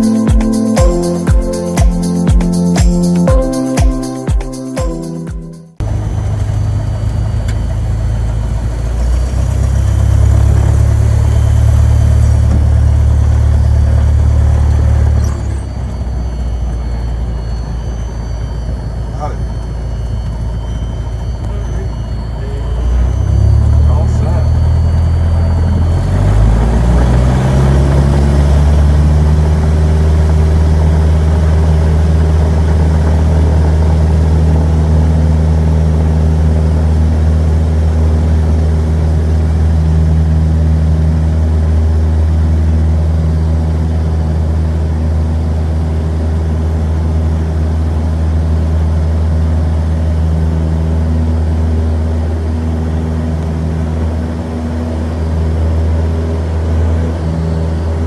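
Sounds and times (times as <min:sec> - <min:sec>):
light aircraft engine drone: 0:05.8 - 0:58.0.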